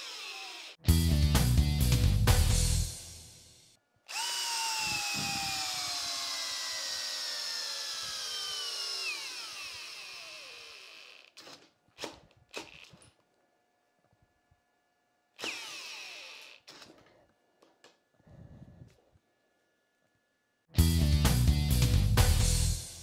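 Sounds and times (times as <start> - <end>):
cordless drill boring into wood: 0.0 - 0.8, 4.1 - 13.0, 15.4 - 17.0.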